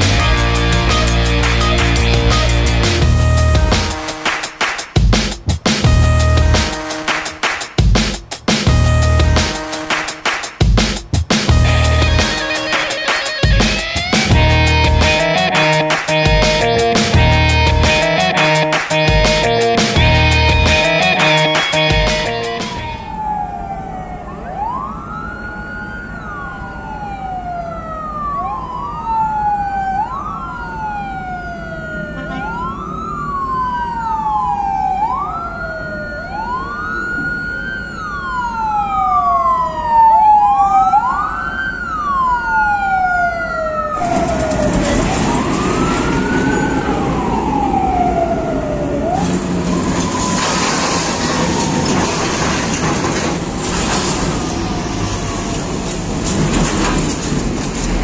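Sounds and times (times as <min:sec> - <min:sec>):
vehicle siren wailing: 0:00.0 - 0:04.4, 0:11.5 - 0:57.9
loud rushing noise: 0:44.0 - 0:47.4, 0:49.2 - 0:58.0.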